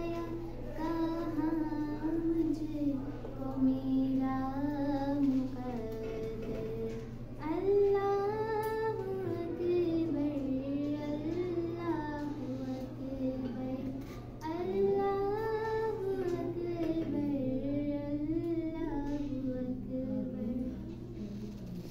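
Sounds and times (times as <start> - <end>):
girl singing: 0.0 - 21.8
steady low hum: 0.0 - 21.9.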